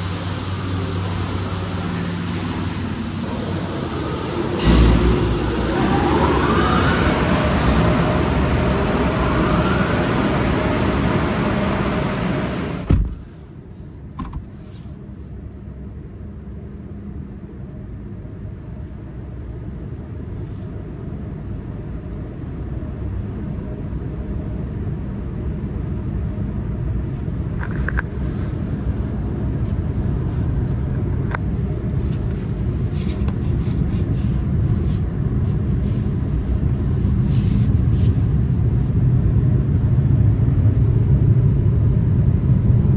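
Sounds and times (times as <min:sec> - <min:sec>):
low rumble: 0:00.0 - 0:13.0, 0:15.7 - 0:42.9
car wash spray rushing: 0:00.0 - 0:13.4, 0:31.5 - 0:40.1.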